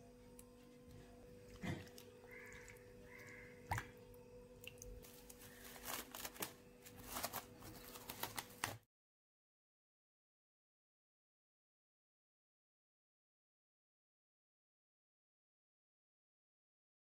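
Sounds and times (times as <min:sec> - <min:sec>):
low steady hum: 0:00.0 - 0:08.8
cling film crackling: 0:05.0 - 0:08.8.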